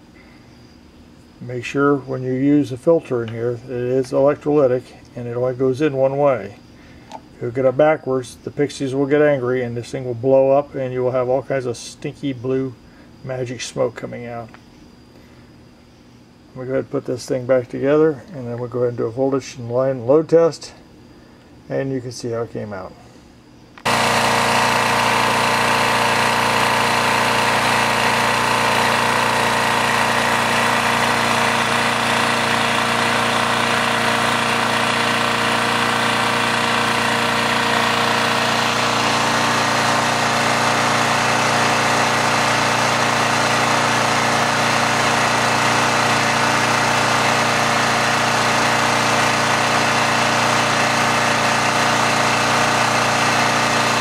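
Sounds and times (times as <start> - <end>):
generator engine running: 23.8 - 54.0.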